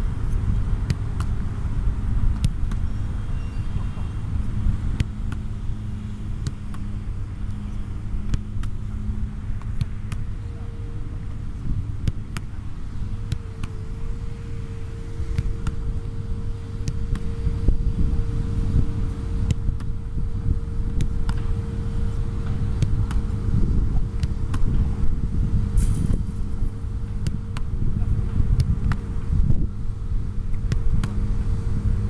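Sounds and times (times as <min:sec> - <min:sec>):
faint steady hum: 0:00.0 - 0:32.0
low outdoor rumble: 0:00.0 - 0:32.0
football being kicked: 0:00.8 - 0:01.5, 0:02.3 - 0:03.0, 0:04.8 - 0:05.6, 0:06.3 - 0:10.4, 0:11.3 - 0:20.0, 0:20.6 - 0:25.1, 0:27.1 - 0:29.7, 0:30.5 - 0:31.3.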